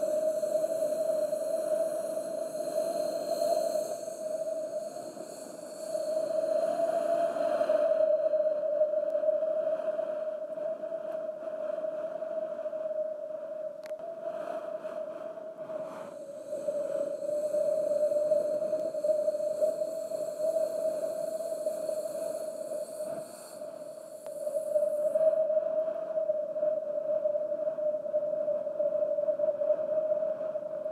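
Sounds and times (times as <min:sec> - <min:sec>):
wind howling: 0:15.6 - 0:30.9.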